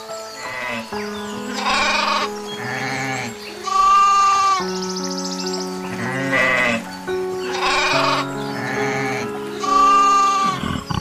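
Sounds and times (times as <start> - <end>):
music with long held notes: 0.0 - 11.0
goats bleating: 1.6 - 4.6, 7.5 - 11.0.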